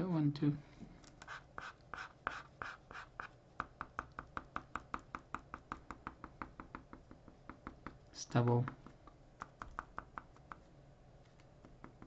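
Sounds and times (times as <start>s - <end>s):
pen rubbing on paper: 1.2s - 3.4s.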